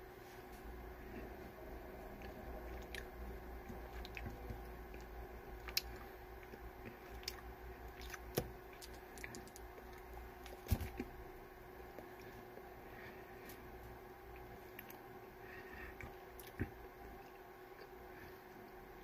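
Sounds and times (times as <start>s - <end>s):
faint steady hum: 0.0s - 19.0s
chewing candy with mouth clicks: 2.2s - 10.1s, 16.0s - 18.0s.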